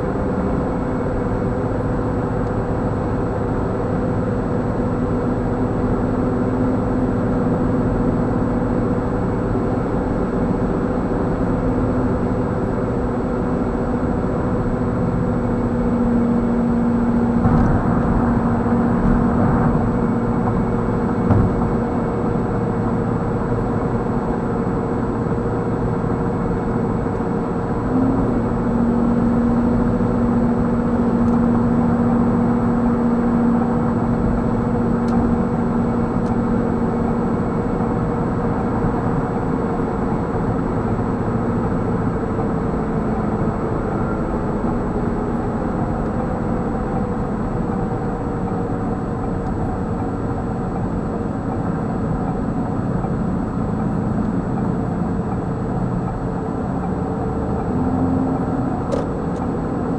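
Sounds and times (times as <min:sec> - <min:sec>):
car interior road and engine noise: 0:00.0 - 0:59.9
low hum: 0:13.4 - 0:23.0.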